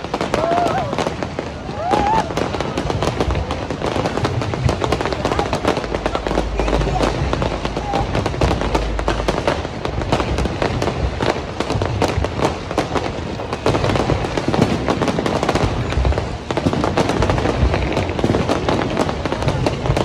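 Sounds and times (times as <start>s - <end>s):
fireworks crackling and banging: 0.0s - 20.0s.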